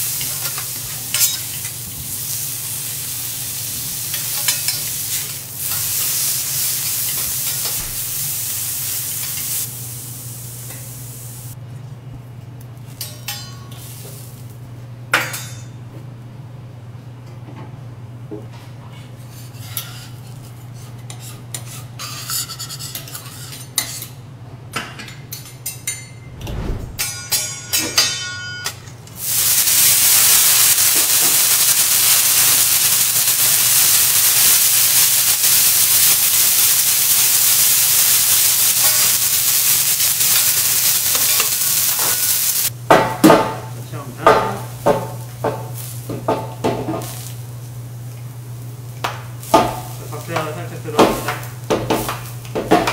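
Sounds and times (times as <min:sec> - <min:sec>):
bean sprouts sizzling on griddle: 0:00.0 - 0:11.6, 0:29.2 - 0:42.7, 0:44.0 - 0:52.9
spatula and dishes clinking: 0:00.2 - 0:01.8.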